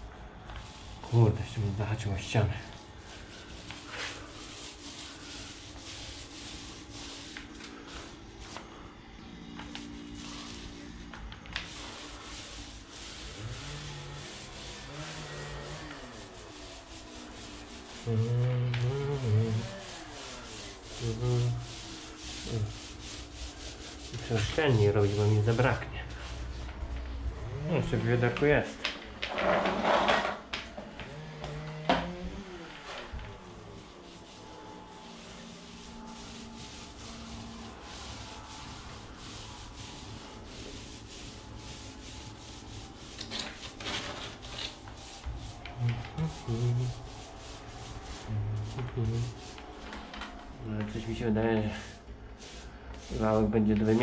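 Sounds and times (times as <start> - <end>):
paint roller rubbing on concrete: 0.0 - 28.7, 29.3 - 54.0
low humming tone: 12.9 - 24.3.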